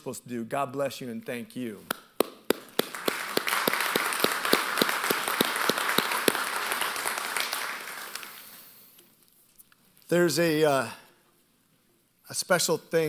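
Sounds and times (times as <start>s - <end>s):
loud claps close to microphone: 1.9s - 8.6s
audience applauding: 2.5s - 8.6s.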